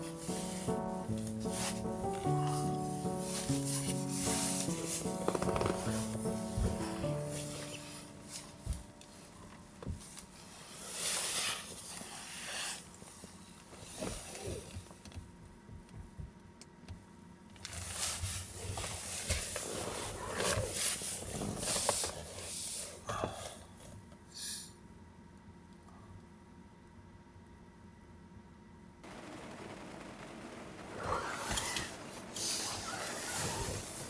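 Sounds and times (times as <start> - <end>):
jacket and blanket rustling: 0.0 - 12.2.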